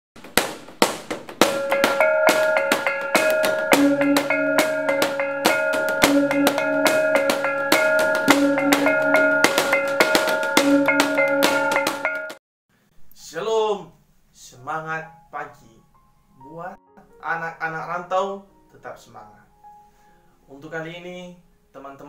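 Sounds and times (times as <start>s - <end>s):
drum beat: 0.2s - 12.4s
low bass notes: 1.4s - 12.4s
repeating melody: 1.4s - 12.4s.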